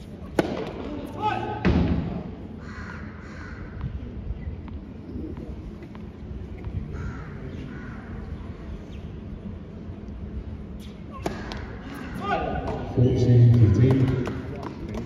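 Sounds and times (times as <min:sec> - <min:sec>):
crows cawing: 0:02.6 - 0:03.8, 0:06.9 - 0:08.2, 0:11.4 - 0:12.3.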